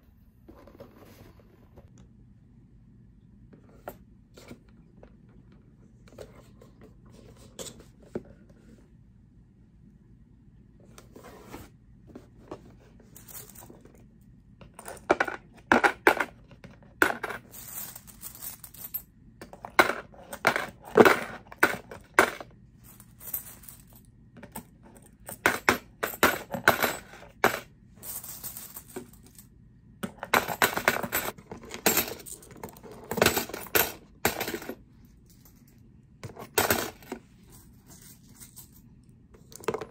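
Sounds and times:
coins clinking into coin bank: 17.0 - 19.1, 25.2 - 29.5, 30.2 - 34.8.

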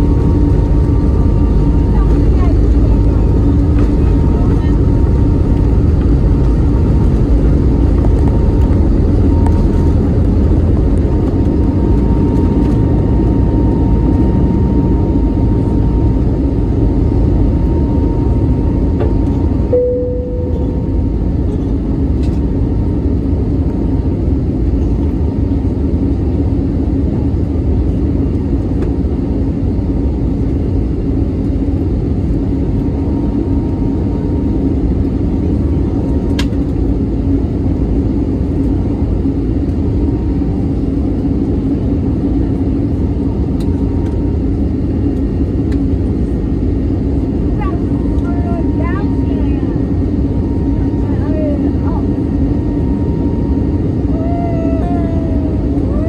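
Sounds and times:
jet engine rumble: 0.0 - 56.0
brief cabin tone: 17.6 - 21.8.

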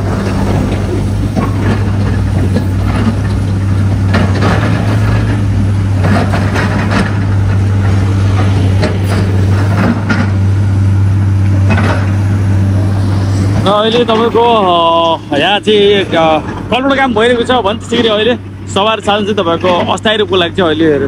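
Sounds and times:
excavator diesel engine droning: 0.0 - 21.0.

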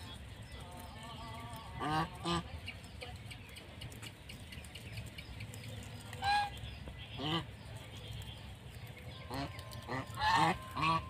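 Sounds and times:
geese honking: 0.6 - 2.7, 5.9 - 8.4, 9.1 - 11.0.

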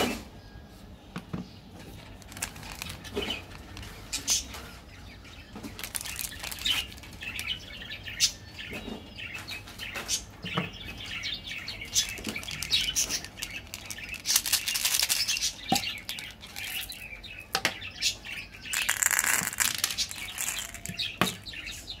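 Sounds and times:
plastic wrappers crinkling: 1.9 - 4.6, 5.5 - 7.8, 11.8 - 17.3, 18.6 - 21.6.

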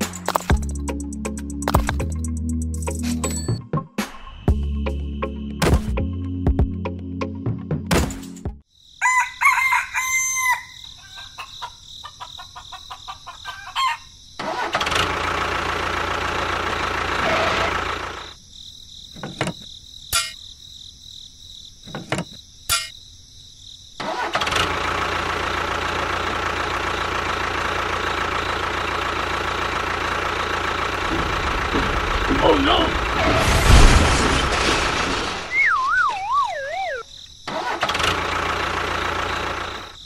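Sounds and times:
rooster crowing: 9.0 - 14.2
tractor engine running: 14.4 - 18.4, 24.0 - 35.6, 36.3 - 40.0.

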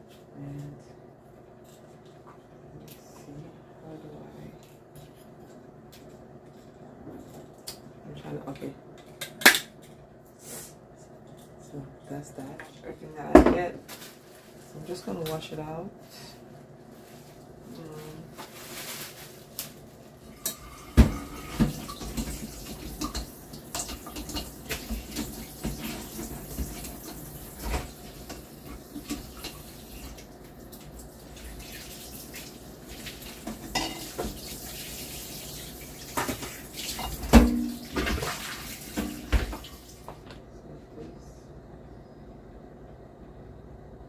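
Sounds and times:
tap water running into sink: 20.5 - 40.2
dishware clinking against sink: 33.5 - 34.4.

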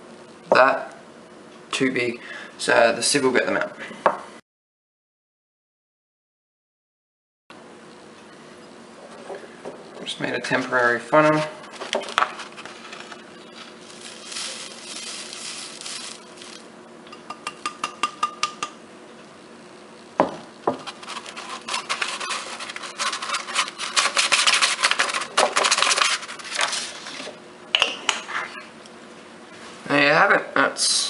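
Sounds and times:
scratchy paper rubbing: 20.8 - 27.3.

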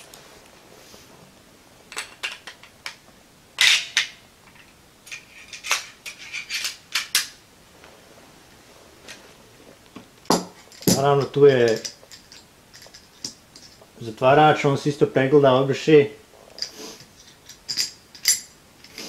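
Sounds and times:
metallic rifle parts clacking: 3.6 - 7.3, 10.3 - 13.8, 16.6 - 19.0.

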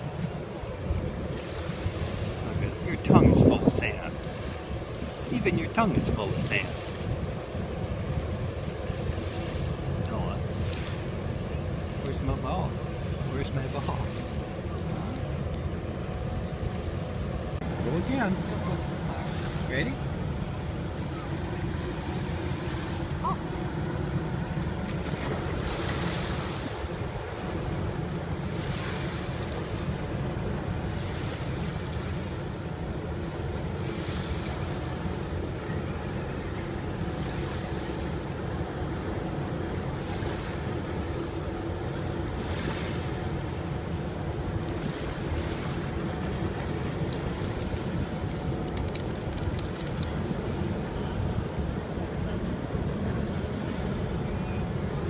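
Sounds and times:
wind buffeting microphone: 0.0 - 34.0
small waves lapping: 0.0 - 55.0
steady low hum: 0.0 - 55.0.

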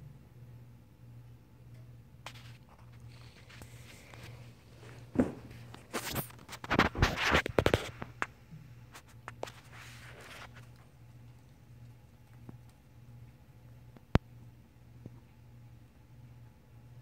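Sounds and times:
low room hum: 0.0 - 17.0
microphone scratching and rustling: 2.3 - 8.3, 8.9 - 10.8.

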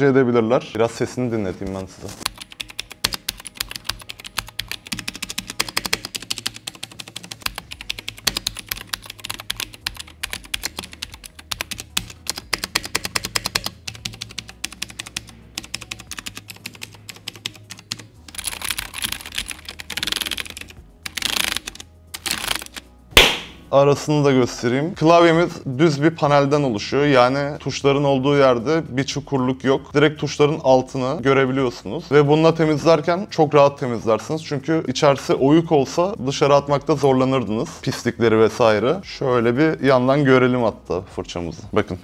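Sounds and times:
rustling noise: 0.9 - 2.3
mechanical keyboard clicking: 2.2 - 22.8.

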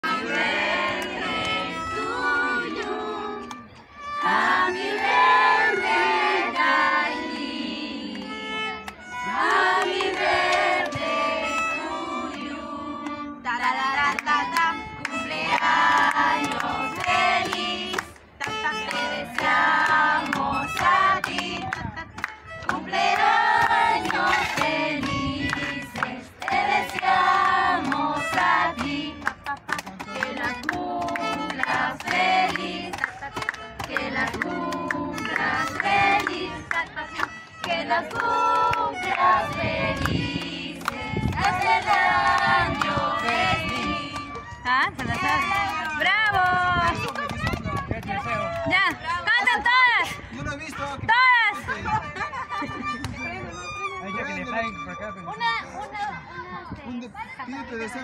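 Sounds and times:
women singing: 0.0 - 8.4, 9.2 - 22.0, 22.6 - 47.3
violin: 0.0 - 58.0.

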